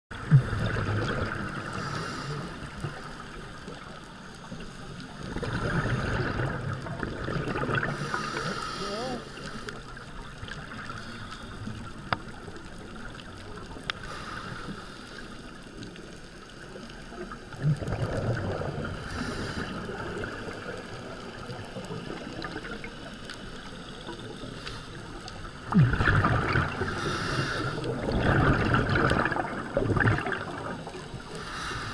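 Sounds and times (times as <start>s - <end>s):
rushing underwater bubbles: 0.1s - 31.9s
quiet hiss: 7.8s - 31.9s.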